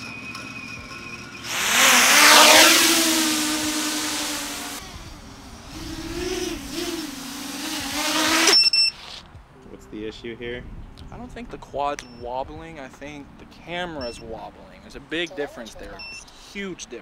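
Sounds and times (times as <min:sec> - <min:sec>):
quadcopter propeller hum: 0:01.4 - 0:08.9.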